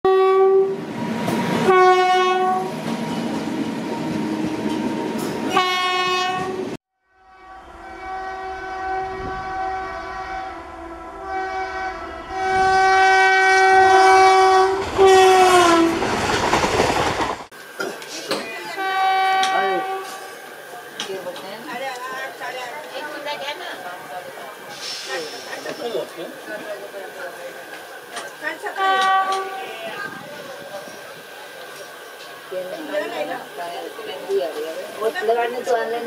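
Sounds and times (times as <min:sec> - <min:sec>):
train air horn blasts: 0:00.1 - 0:00.8, 0:01.6 - 0:02.7, 0:05.5 - 0:16.1, 0:18.7 - 0:20.4, 0:28.7 - 0:29.8
trains running: 0:00.7 - 0:36.0
rattling train wheels: 0:13.8 - 0:18.6.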